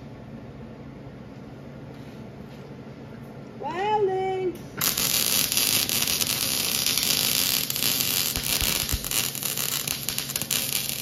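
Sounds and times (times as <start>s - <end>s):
welding arc crackling and hissing: 4.8s - 11.0s.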